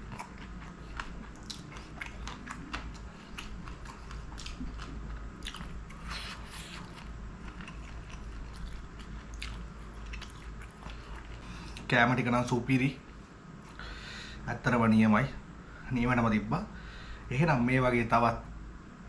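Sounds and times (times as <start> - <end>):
wet chewing: 0.0 - 11.9.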